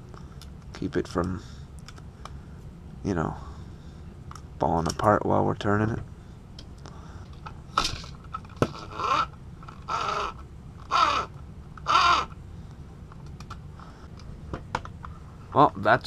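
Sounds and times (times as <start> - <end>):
plastic gears whirring: 8.6 - 12.4.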